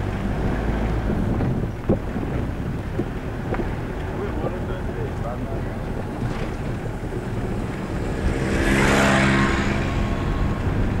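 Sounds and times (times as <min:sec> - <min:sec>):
steady low rumble: 0:00.0 - 0:11.0
vehicle engine passing by: 0:03.1 - 0:11.0.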